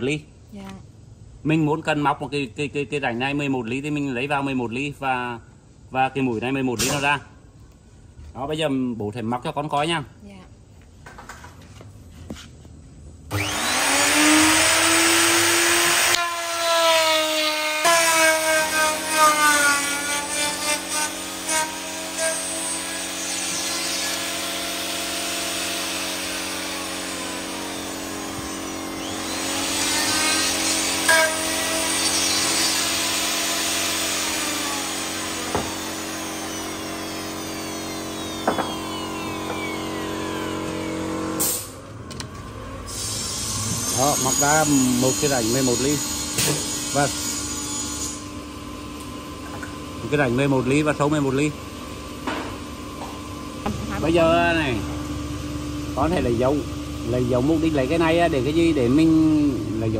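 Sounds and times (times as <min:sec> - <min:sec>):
router motor whine cutting wood: 0:13.3 - 0:41.4, 0:43.2 - 0:48.4.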